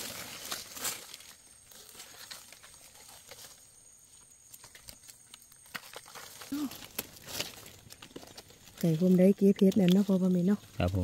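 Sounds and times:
rustling of dry leaf litter: 0.0s - 11.0s.

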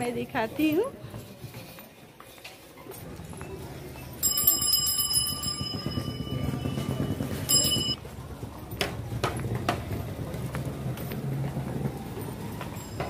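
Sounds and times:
low street rumble: 0.0s - 13.0s
bicycle bell ringing: 4.1s - 8.0s, 12.7s - 13.0s.

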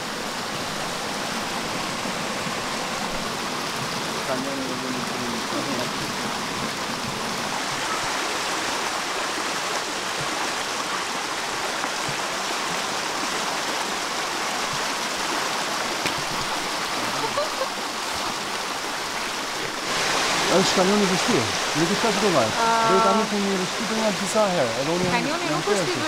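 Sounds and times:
stream water flowing: 0.0s - 26.0s.

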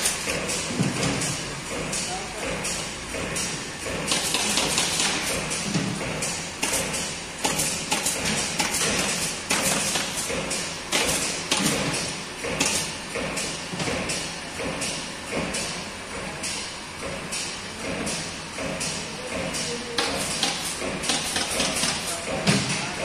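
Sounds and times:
parts knocking and clattering: 0.0s - 23.0s.

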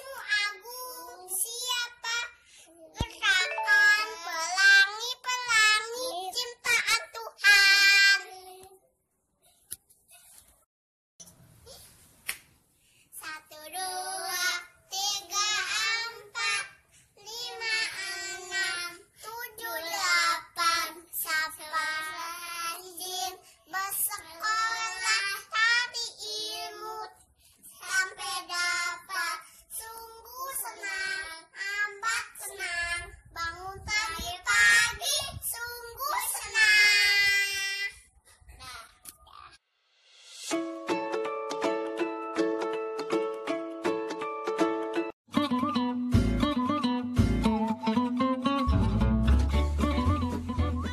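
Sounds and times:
child singing: 0.0s - 8.8s, 13.2s - 38.1s.

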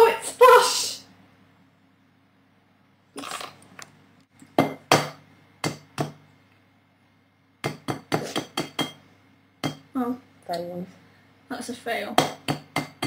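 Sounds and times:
egg tapping on glass bowl: 7.6s - 9.0s, 9.6s - 9.9s, 12.2s - 13.0s.

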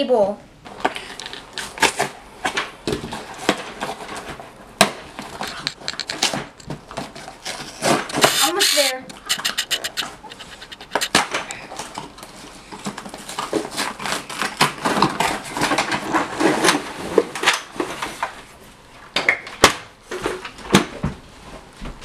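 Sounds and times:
cardboard tearing: 3.0s - 18.3s.

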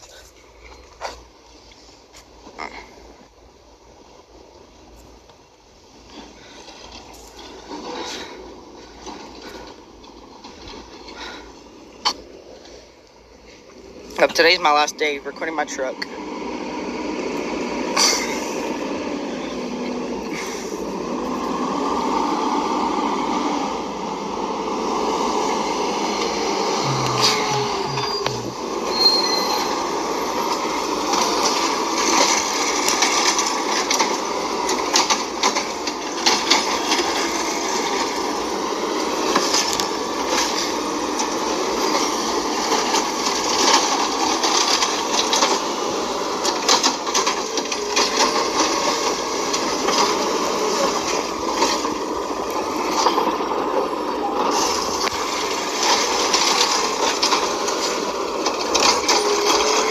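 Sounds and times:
garbage truck engine and hydraulics: 0.0s - 59.9s
cart being dumped: 25.4s - 38.3s, 39.0s - 59.9s.

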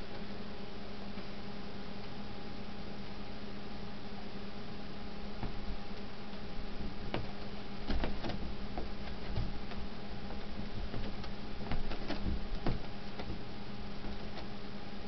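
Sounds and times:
steady low hum: 0.0s - 15.0s
cat paws scratching and thumping: 5.4s - 14.6s.

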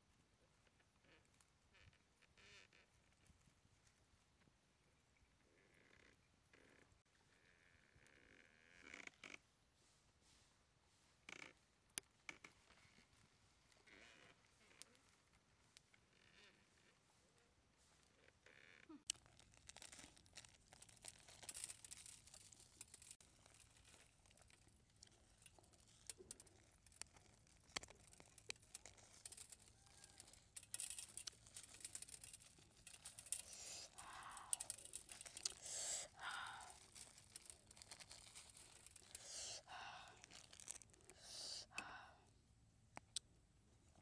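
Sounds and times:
small scattered clicks: 18.8s - 39.6s
plastic bag crinkling: 19.1s - 41.5s.

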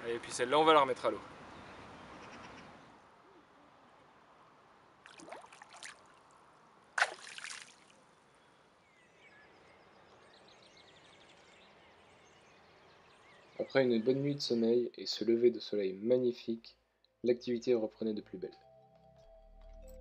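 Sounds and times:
fish splashing in water: 5.0s - 6.3s, 7.0s - 8.0s.

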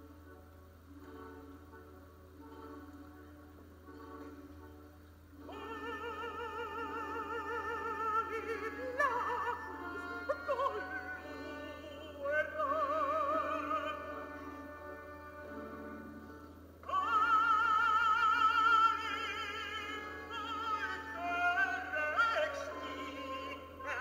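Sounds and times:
soft sustained accompaniment: 0.0s - 24.0s
operatic singing: 5.4s - 24.0s.

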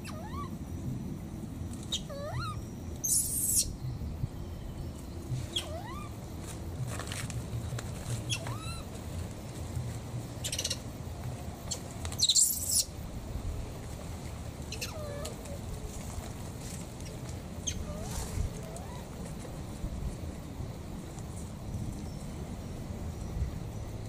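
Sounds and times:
baby monkey squeaking: 0.0s - 0.5s, 1.9s - 3.8s, 5.5s - 6.2s, 8.2s - 8.9s, 10.4s - 10.8s, 11.7s - 12.9s, 14.7s - 15.4s, 17.6s - 19.0s
rustling: 5.3s - 10.2s, 13.7s - 20.3s.

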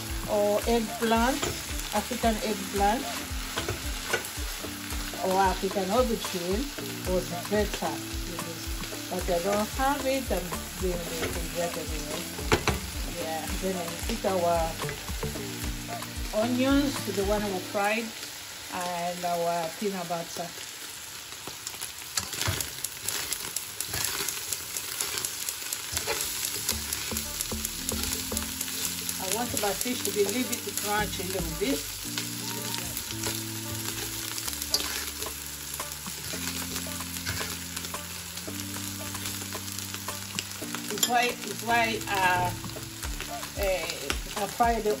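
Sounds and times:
background music: 0.0s - 19.6s, 26.0s - 45.0s
fish sizzling in oil: 0.0s - 45.0s
metal fork scraping pan: 23.9s - 24.4s, 25.9s - 27.1s, 33.2s - 35.4s, 37.2s - 37.6s.

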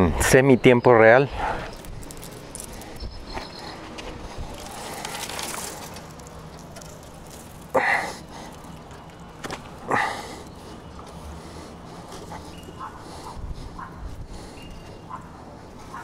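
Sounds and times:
low outdoor background noise: 0.0s - 16.0s
dog barking: 12.8s - 13.0s, 13.8s - 14.0s, 15.1s - 16.0s.

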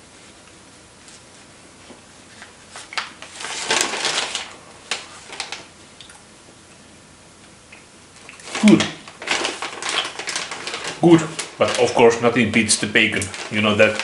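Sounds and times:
paper crinkling rustle: 1.0s - 5.7s, 8.2s - 14.0s
sharp clicks of packaging: 2.8s - 6.1s, 8.2s - 12.0s, 12.6s - 14.0s.

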